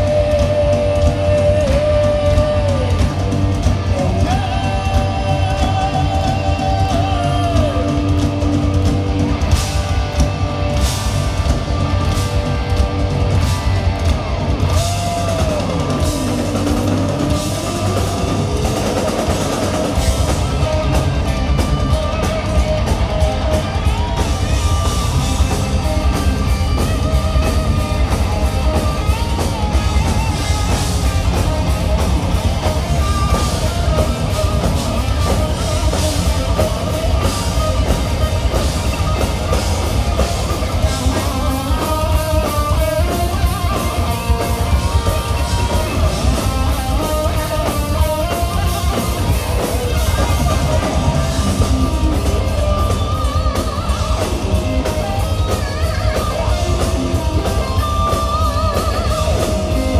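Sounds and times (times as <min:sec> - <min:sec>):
heavy metal band playing live: 0:00.0 - 0:59.9.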